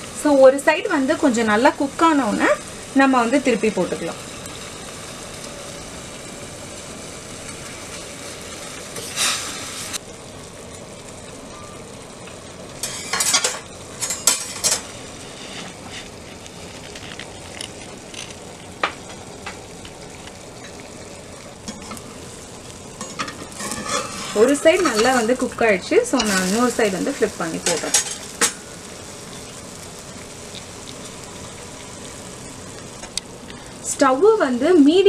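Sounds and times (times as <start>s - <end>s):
batter sizzling in a pan: 0.0s - 35.0s.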